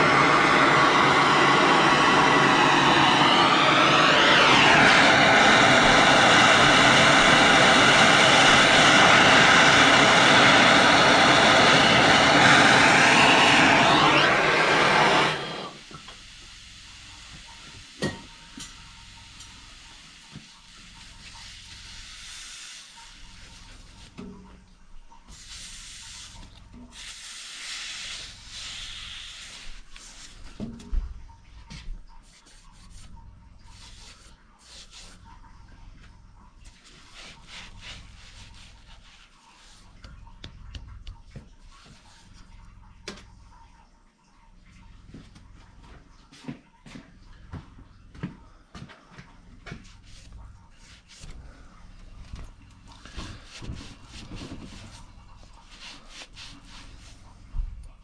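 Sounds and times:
gas torch hissing: 0:00.0 - 0:24.2, 0:25.3 - 0:30.5
rag rubbing over pipe: 0:36.8 - 0:40.0.

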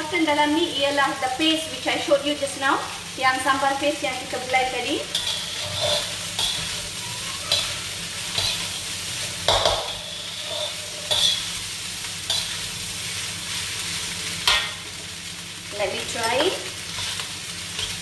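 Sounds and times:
rice sizzling in a wok: 0:00.0 - 0:18.0
metal spatula scraping a wok: 0:04.3 - 0:14.9, 0:16.8 - 0:18.0.

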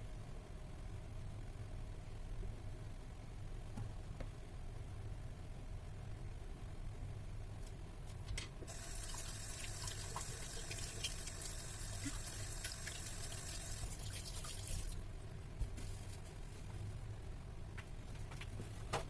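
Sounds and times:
low steady hum: 0:00.0 - 0:19.0
water running from a tap: 0:08.7 - 0:15.0.

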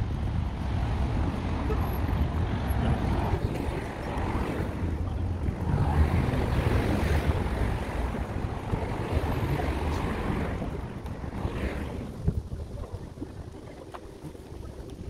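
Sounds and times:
street background noise: 0:00.0 - 0:15.0
wind buffeting microphone: 0:00.0 - 0:15.0.

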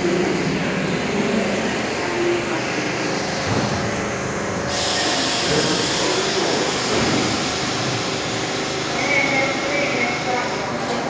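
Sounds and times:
subway train rumbling and rattling: 0:00.0 - 0:11.0
hiss: 0:04.7 - 0:10.5.

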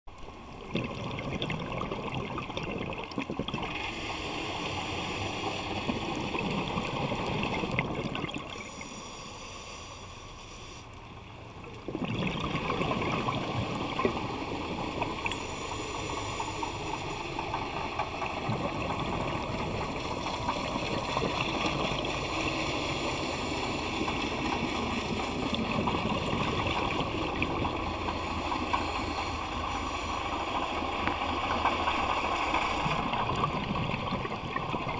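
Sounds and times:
water gurgling underwater: 0:00.6 - 0:03.8, 0:05.8 - 0:08.6, 0:11.6 - 0:15.3, 0:17.9 - 0:22.3, 0:24.4 - 0:27.9, 0:32.8 - 0:34.9.

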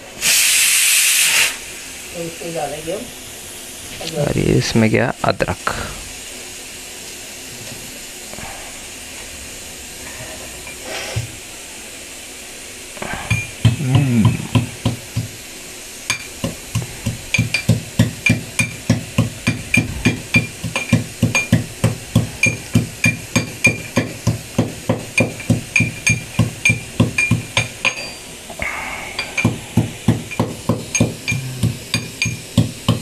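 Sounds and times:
gas burner hissing: 0:00.0 - 0:33.0
steel pestle pounding in mortar: 0:13.3 - 0:15.4, 0:16.1 - 0:28.0, 0:29.2 - 0:33.0.

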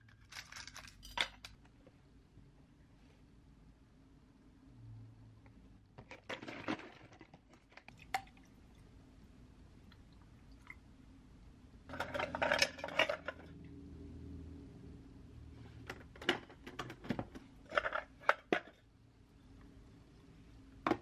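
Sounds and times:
coffee capsules clinking in metal tin: 0:00.0 - 0:01.5
faint low hum: 0:00.0 - 0:21.0.

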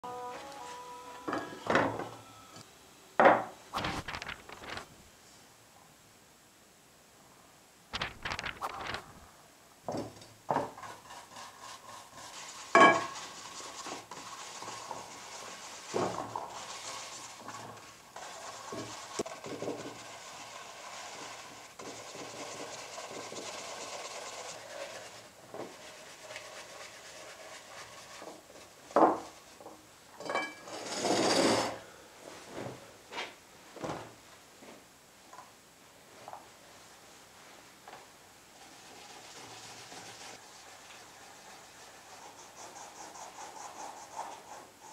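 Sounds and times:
brush scrubbing wet leather: 0:10.9 - 0:29.6, 0:38.6 - 0:44.9
glass dish clinking: 0:12.8 - 0:13.1, 0:30.2 - 0:30.7.

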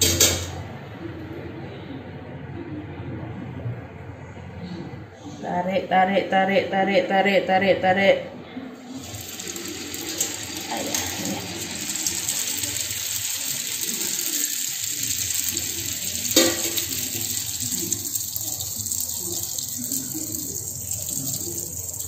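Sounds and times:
dough deep-frying in oil: 0:08.9 - 0:22.0.

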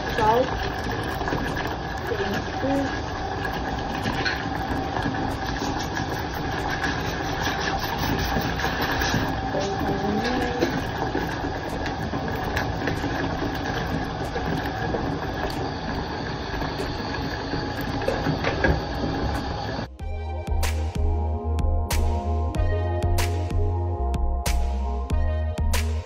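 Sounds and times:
music: 0:19.9 - 0:26.0.

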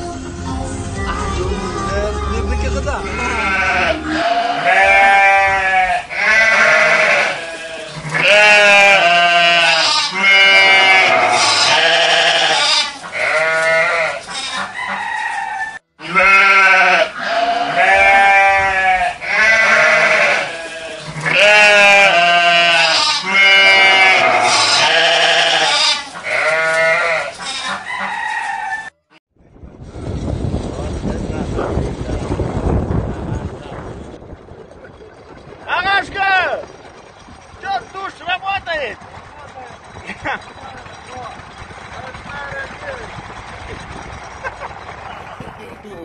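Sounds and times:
men bleating like sheep: 0:02.6 - 0:14.2, 0:16.0 - 0:27.4.

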